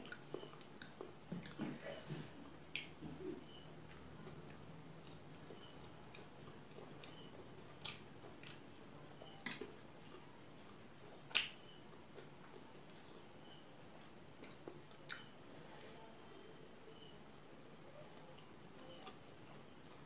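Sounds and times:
mouth smacks of eating: 14.4s - 15.3s.

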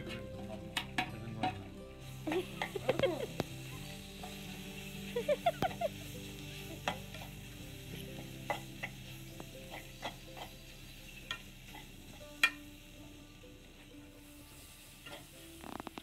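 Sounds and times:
food sizzling in a pan: 0.0s - 16.0s
metal spoon scraping a pan: 2.0s - 12.6s, 14.8s - 16.0s.

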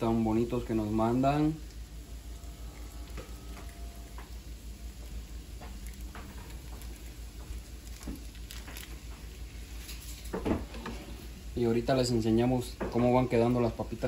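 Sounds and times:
low steady hum: 0.0s - 14.0s
chorizo squeezed into pan: 1.6s - 10.4s.

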